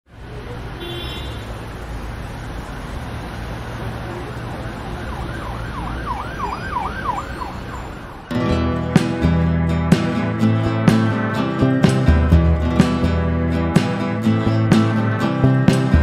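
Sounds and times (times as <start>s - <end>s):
siren wailing: 4.6s - 8.3s
music: 8.3s - 16.0s.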